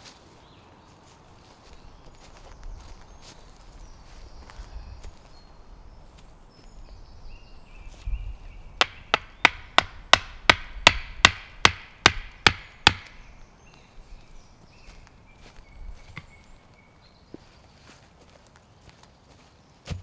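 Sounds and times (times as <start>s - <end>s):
hatchet striking wood: 8.8s - 13.2s.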